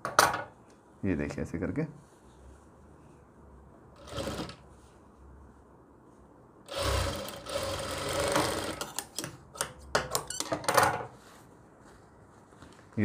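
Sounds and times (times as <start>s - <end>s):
sewing machine running: 4.0s - 4.6s, 6.7s - 8.8s.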